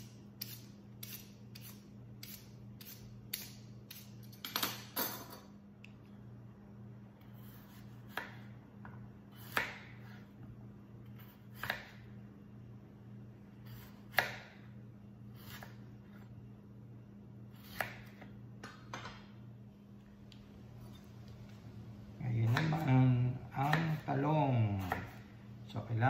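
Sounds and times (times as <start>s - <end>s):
knife slicing radish: 0.0s - 4.2s, 9.3s - 10.3s, 11.2s - 12.0s, 13.6s - 14.6s, 15.3s - 16.2s, 17.5s - 18.3s, 22.4s - 25.2s
steady low hum: 0.0s - 26.0s.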